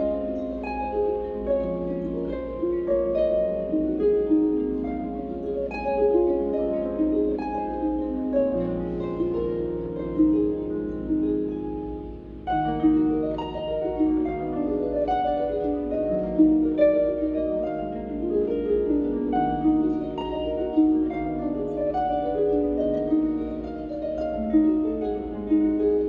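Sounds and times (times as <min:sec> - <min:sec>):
harp playing: 0:00.0 - 0:26.0.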